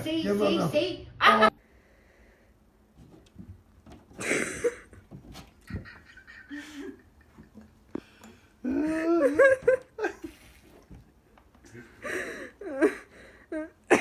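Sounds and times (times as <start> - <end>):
cat paws thumping and scrabbling: 2.9 - 6.3
wavering pitched vocal cry: 8.6 - 9.5.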